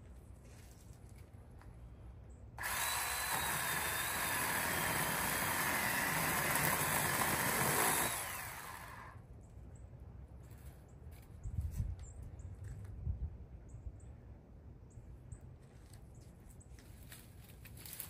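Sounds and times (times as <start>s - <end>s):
electric pole cutter whining: 2.6s - 9.2s.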